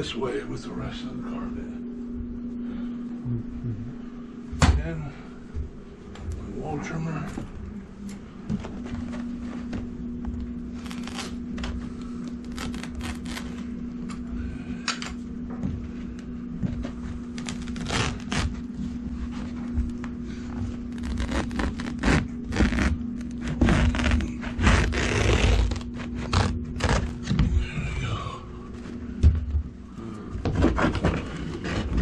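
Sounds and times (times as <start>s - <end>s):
steady low hum: 0.0s - 32.0s
carpet rustling: 7.1s - 13.6s
carpet trimmer scratchy cuts: 21.0s - 27.1s.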